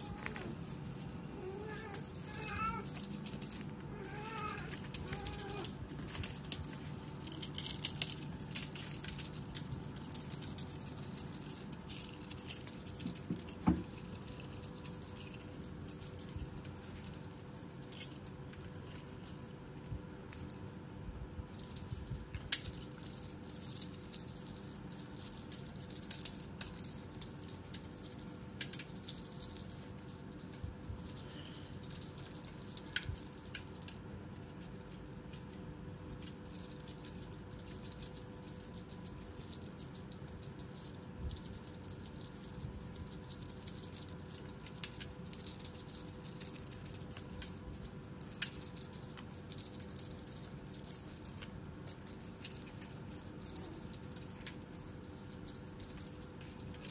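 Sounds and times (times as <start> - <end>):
kittens scampering on dirt: 0.0 - 10.0.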